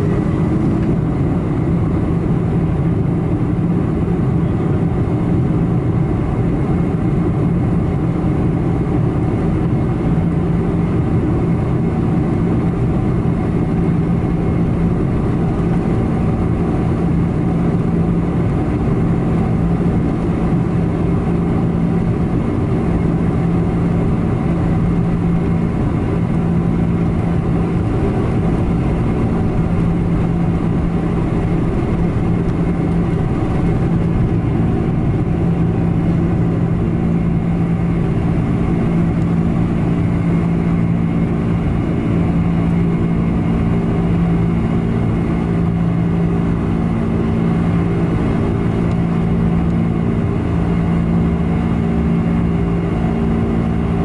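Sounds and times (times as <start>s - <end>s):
jet engines roaring in cabin: 0.0s - 54.0s.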